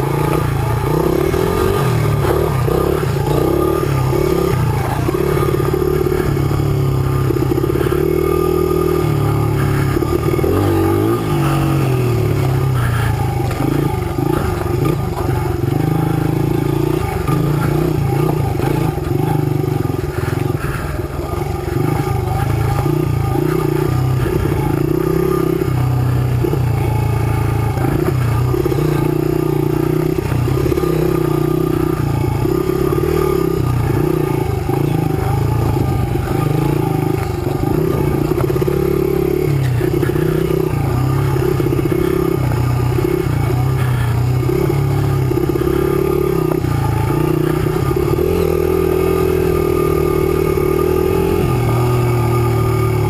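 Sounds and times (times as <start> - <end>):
dirt bike engine revving: 0.0 - 53.0.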